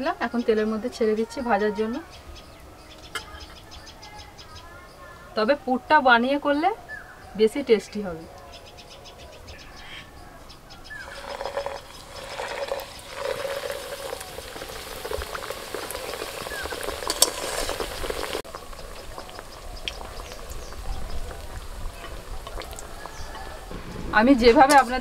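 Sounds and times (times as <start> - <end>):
oil sizzling and bubbling: 10.9 - 25.0
small crackles in oil: 11.0 - 23.7.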